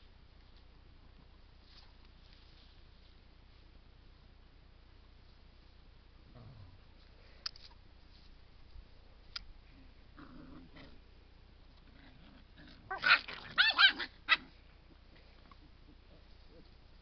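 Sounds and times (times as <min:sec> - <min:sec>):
dog growling: 0:10.2 - 0:11.1, 0:11.8 - 0:14.5
dogs yelping and barking: 0:12.6 - 0:14.6.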